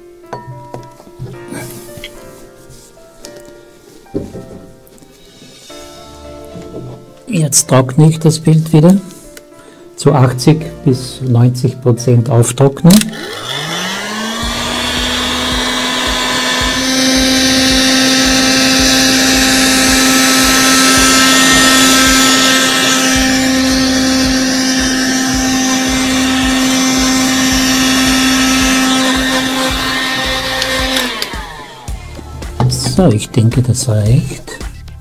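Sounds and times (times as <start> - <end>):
heat gun blowing hot air: 13.0 - 32.3.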